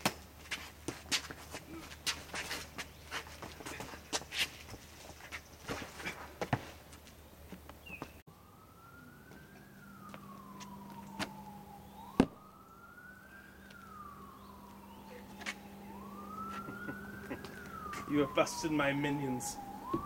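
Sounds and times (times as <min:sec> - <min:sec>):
siren wailing: 0:08.3 - 0:20.0.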